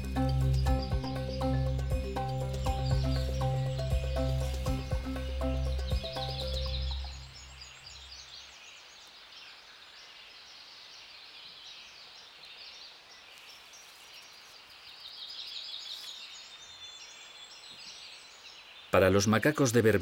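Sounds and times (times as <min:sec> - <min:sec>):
background music low notes: 0:00.0 - 0:07.8
faint outdoor hiss: 0:00.0 - 0:20.0
small birds chirping: 0:00.0 - 0:20.0.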